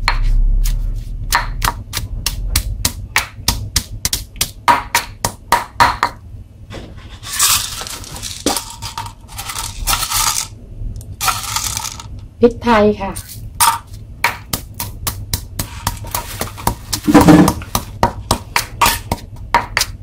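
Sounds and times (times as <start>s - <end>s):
pestle pounding in stone mortar: 0.0s - 6.2s, 13.6s - 20.0s
scraping and rustling: 6.7s - 10.5s.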